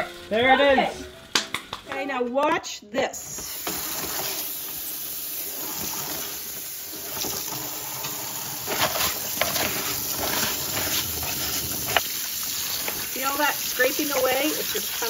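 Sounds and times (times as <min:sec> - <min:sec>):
tap water running in sink: 0:03.3 - 0:15.0
scraping oven liner: 0:07.1 - 0:12.0.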